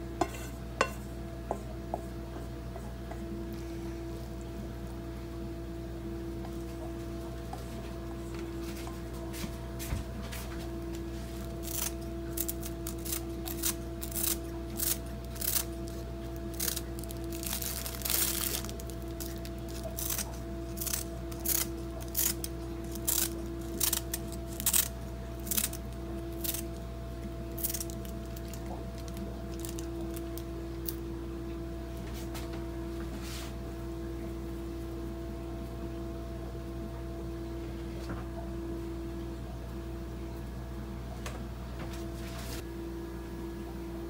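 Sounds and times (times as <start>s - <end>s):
steady hum with held tone: 0.0s - 44.0s
dried seaweed snapping: 11.4s - 26.8s, 27.5s - 31.0s.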